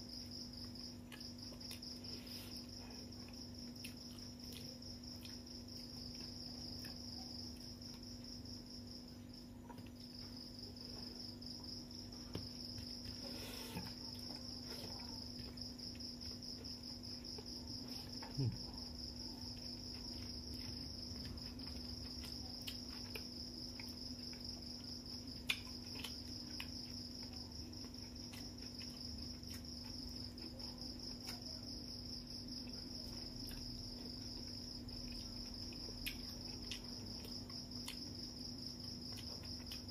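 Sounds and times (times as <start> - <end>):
insects chirping: 0.0 - 39.9
clicks of eating with fingers: 20.6 - 27.0, 35.1 - 38.2.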